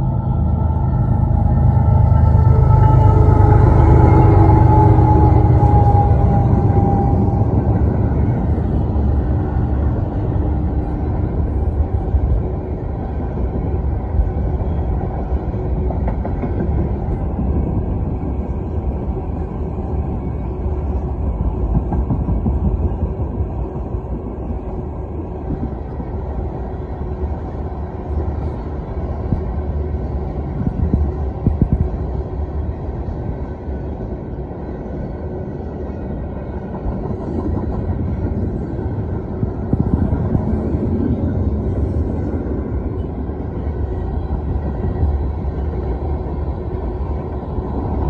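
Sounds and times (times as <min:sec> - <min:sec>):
train wheels rumbling on rails: 0:00.0 - 0:48.0
train clatter: 0:13.7 - 0:19.2, 0:20.8 - 0:26.0, 0:30.4 - 0:32.1, 0:36.5 - 0:43.5.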